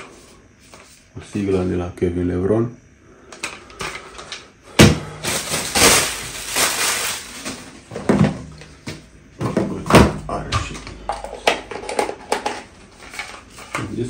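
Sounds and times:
rustling and crinkling in box: 5.2s - 8.8s.

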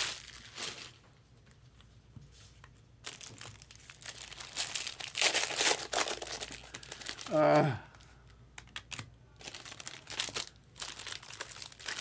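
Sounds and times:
plastic packaging crinkling: 0.0s - 1.1s, 3.0s - 7.4s, 8.6s - 12.0s.

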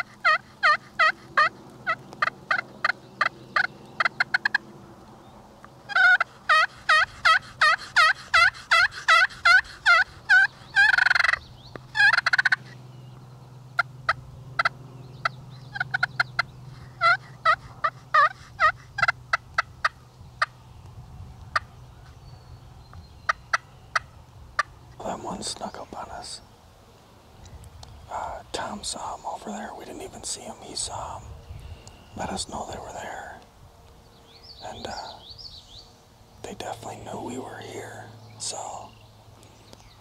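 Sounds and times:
wild turkeys calling: 0.0s - 5.1s, 5.7s - 12.8s, 13.7s - 20.6s, 23.0s - 26.4s, 34.4s - 35.4s
turkey alarm putts: 5.9s - 12.8s.

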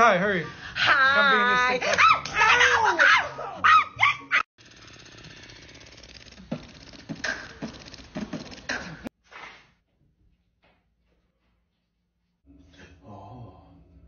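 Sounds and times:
tattoo machine buzzing: 4.6s - 9.0s.

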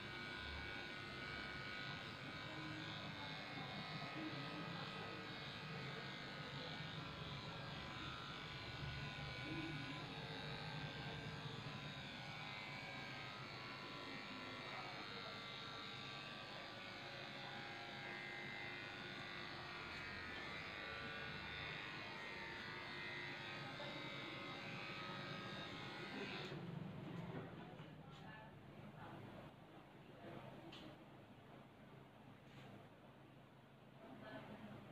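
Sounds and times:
electric clippers shaving: 0.0s - 27.3s.

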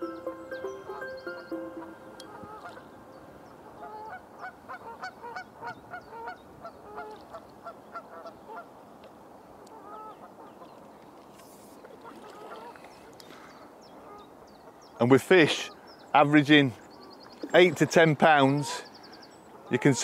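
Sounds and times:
geese honking: 0.6s - 3.0s.

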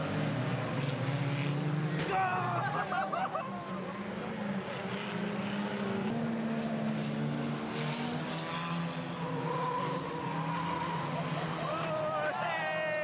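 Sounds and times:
car engines running: 0.0s - 13.0s
tyres skidding: 8.0s - 13.0s.

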